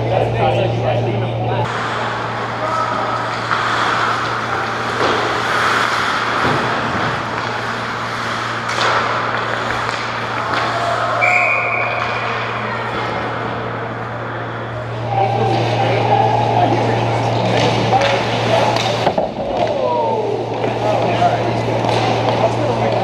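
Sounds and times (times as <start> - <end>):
steady low hum: 0.0 - 23.0
skates scraping ice: 1.7 - 11.2.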